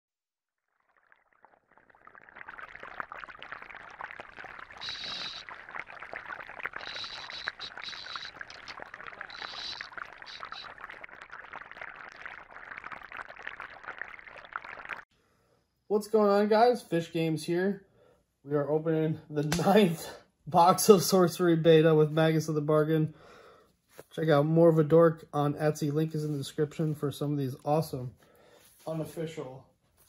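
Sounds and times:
bubbling gurgling water: 0:00.6 - 0:15.0
high tone bursts: 0:04.8 - 0:05.6, 0:06.7 - 0:10.8.

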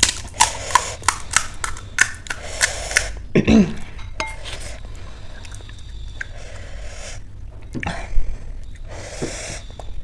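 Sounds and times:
crisp shells cracking: 0:00.0 - 0:03.2.

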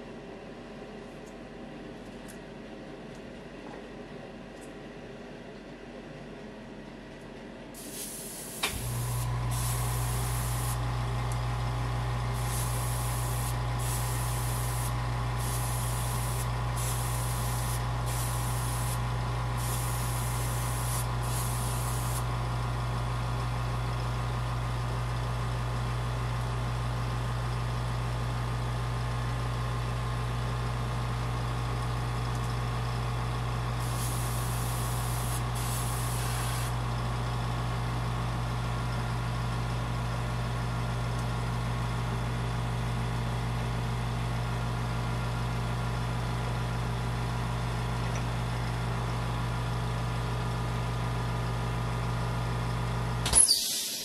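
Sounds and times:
airbrush hissing: 0:07.8 - 0:10.8, 0:12.4 - 0:19.0, 0:19.6 - 0:22.3, 0:33.8 - 0:36.8, 0:53.5 - 0:54.0
motor humming: 0:07.8 - 0:22.3, 0:33.8 - 0:36.8.

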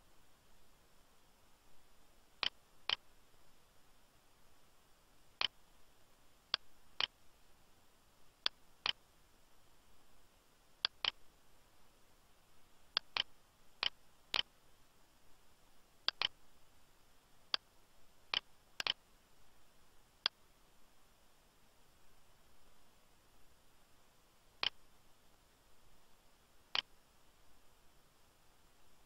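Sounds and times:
computer mouse clicks: 0:02.4 - 0:03.0, 0:10.8 - 0:11.2, 0:12.9 - 0:14.5, 0:16.0 - 0:16.4, 0:18.3 - 0:19.0, 0:24.6 - 0:24.8.

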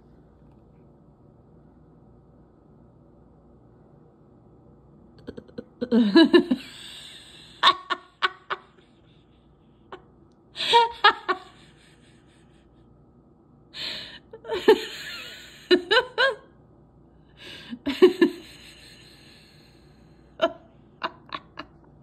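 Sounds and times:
woman giggling: 0:05.2 - 0:12.7, 0:13.8 - 0:16.5, 0:17.4 - 0:19.2, 0:20.4 - 0:22.0.

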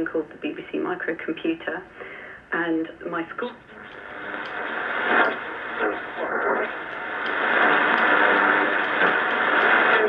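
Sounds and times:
radio static and hiss: 0:00.3 - 0:10.0
broadcast voices on radio: 0:02.6 - 0:10.0.

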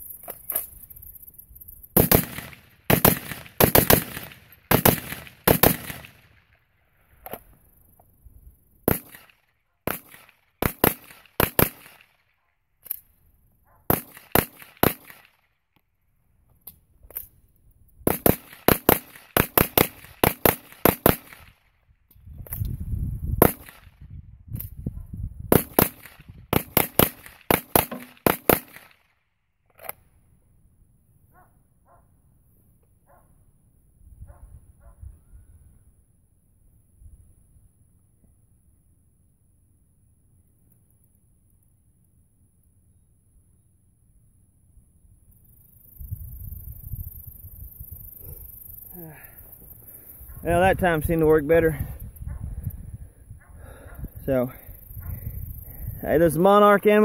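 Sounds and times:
rifle firing rapid shots: 0:02.0 - 0:06.3, 0:09.9 - 0:12.0, 0:13.9 - 0:15.3, 0:18.1 - 0:21.5, 0:25.5 - 0:28.9.

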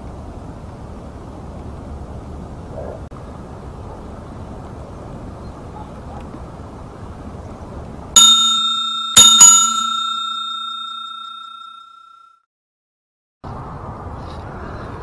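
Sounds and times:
bell ringing: 0:08.2 - 0:12.4.

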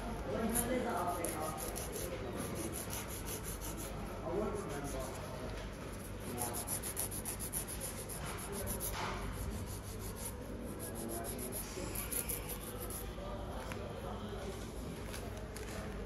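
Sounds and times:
nail file rasping on fingernails: 0:00.5 - 0:05.2, 0:06.0 - 0:13.1.

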